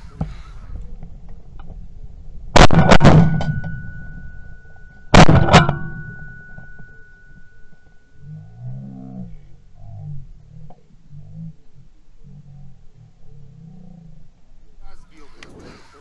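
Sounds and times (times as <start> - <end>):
thin high ringing: 3.4 - 5.1, 5.7 - 8.7.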